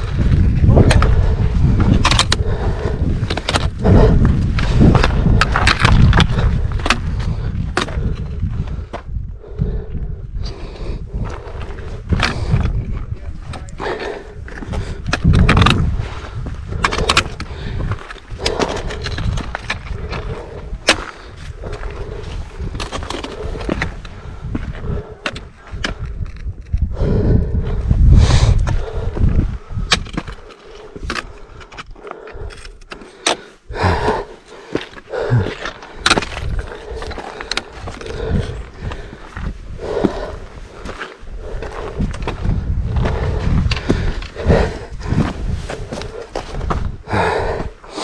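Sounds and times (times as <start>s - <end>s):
wind rumble on microphone: 0.0s - 32.9s, 35.1s - 48.0s
trekking pole tips clicking on rock: 0.7s - 8.3s, 13.5s - 16.0s
trekking pole clicking on stone: 0.7s - 8.4s, 12.1s - 12.8s, 13.5s - 26.9s, 29.7s - 46.6s
boots crunching on scree: 33.0s - 48.0s.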